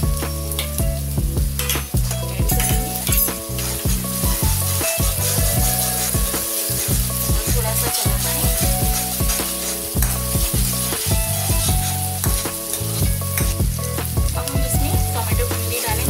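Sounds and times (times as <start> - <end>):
onion frying in oil: 0.0 - 16.0
spatula scraping pan: 2.5 - 13.9.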